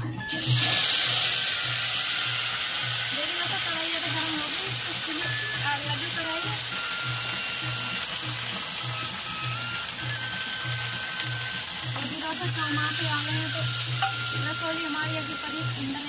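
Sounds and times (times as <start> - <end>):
hot oil sizzling: 0.1 - 16.0.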